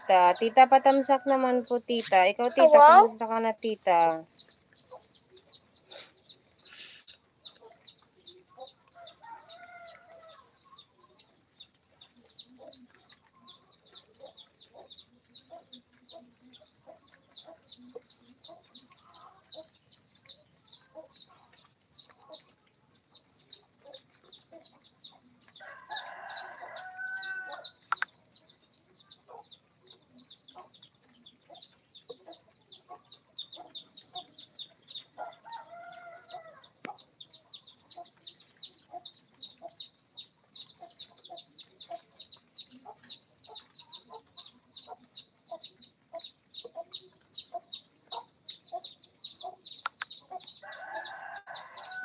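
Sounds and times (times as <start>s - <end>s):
chickens clucking: 0.0s - 52.0s
chicks peeping: 1.9s - 52.0s
rooster crowing: 25.6s - 27.7s, 50.6s - 52.0s.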